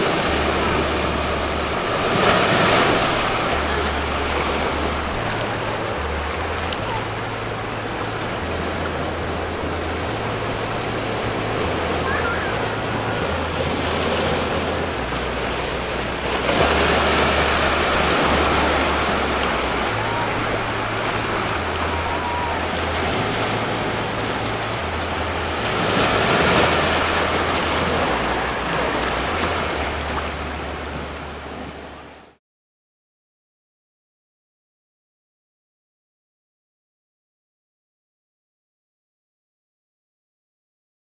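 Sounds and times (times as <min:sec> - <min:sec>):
surf washing over rocks: 0:00.0 - 0:32.3.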